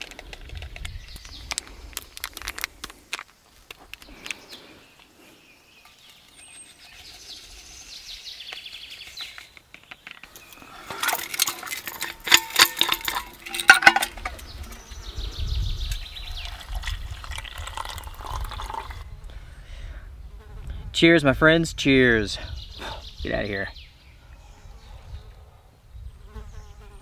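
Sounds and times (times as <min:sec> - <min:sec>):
metal canteen clinking and rattling: 0:08.5 - 0:14.9, 0:15.9 - 0:19.0
water pouring into metal cup: 0:10.8 - 0:14.4, 0:16.4 - 0:19.1.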